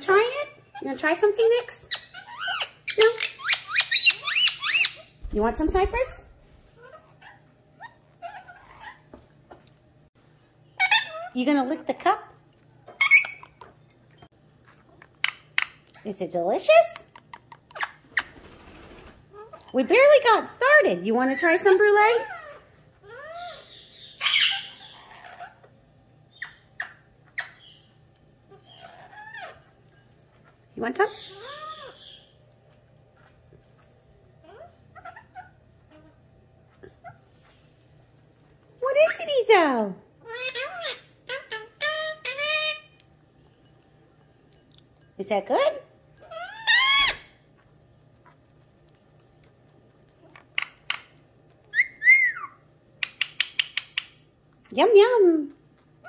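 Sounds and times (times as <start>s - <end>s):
parakeet harsh squawk: 1.9s - 6.1s, 21.3s - 25.7s, 31.1s - 32.4s, 46.2s - 47.4s
high parrot call: 46.3s - 47.4s.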